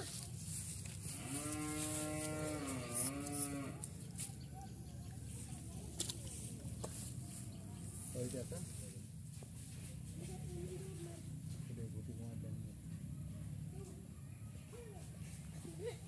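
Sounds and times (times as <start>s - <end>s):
cow mooing: 1.1s - 3.9s.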